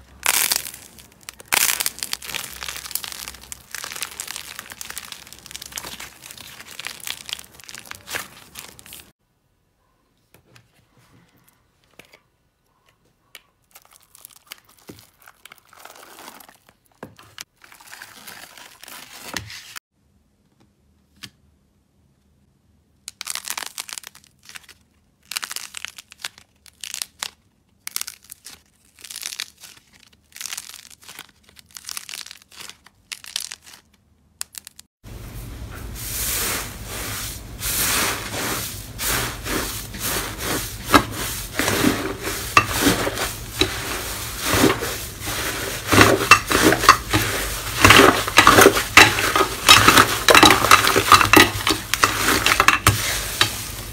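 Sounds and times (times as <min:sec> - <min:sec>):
slime crackling and tearing: 0:00.0 - 0:09.1, 0:13.6 - 0:19.3, 0:23.0 - 0:34.9.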